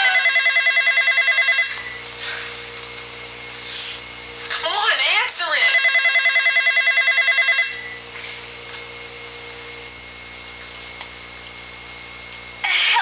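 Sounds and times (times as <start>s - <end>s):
telephone ringing with warbling trill: 0.0s - 2.0s, 5.6s - 8.0s
low hum and hiss: 0.0s - 13.0s.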